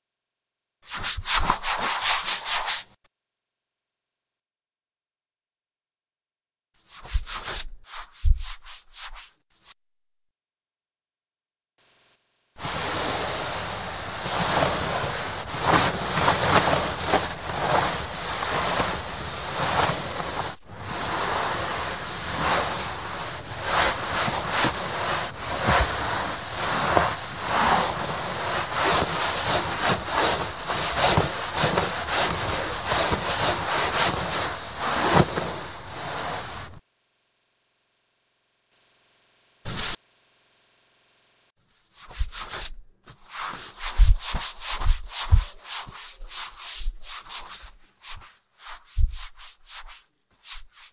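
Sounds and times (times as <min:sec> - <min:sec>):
wet cloth wiping wooden table: 0:12.6 - 0:36.8, 0:41.8 - 0:50.9.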